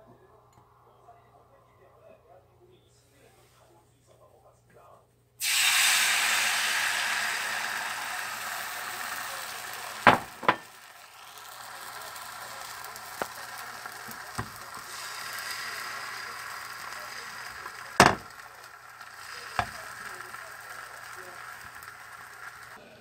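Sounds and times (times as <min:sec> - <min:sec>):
egg mixture sizzling in a pan: 0:05.4 - 0:22.8.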